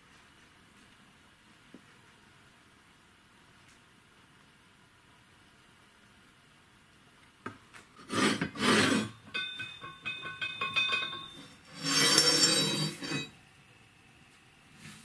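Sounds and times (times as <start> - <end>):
metal scraping over bench: 8.0 - 13.4
steel strips clinking and ringing: 9.0 - 13.4.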